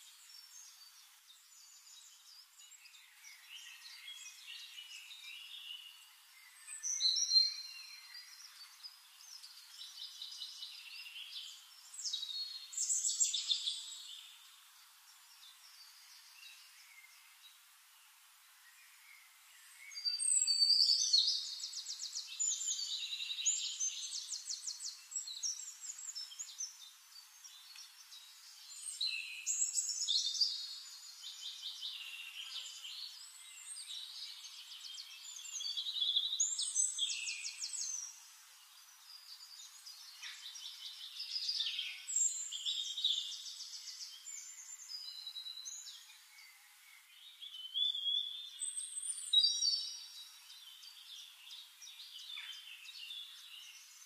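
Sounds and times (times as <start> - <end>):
songbirds singing: 0.0 - 54.0.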